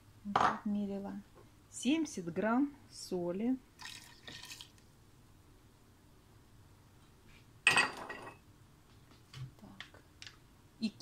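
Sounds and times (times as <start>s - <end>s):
kitchenware clink: 7.7s - 8.4s.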